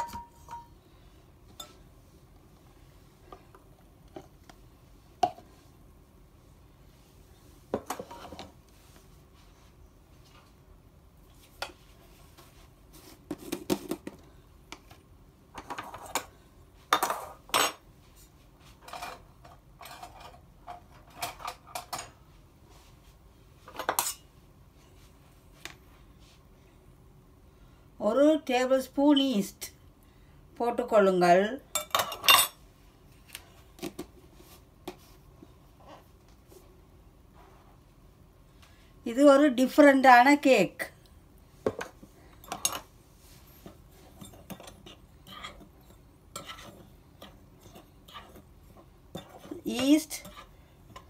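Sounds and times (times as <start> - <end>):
dishes clinking and rattling: 0.0 - 0.7, 18.8 - 22.2, 31.8 - 32.6, 41.7 - 42.9.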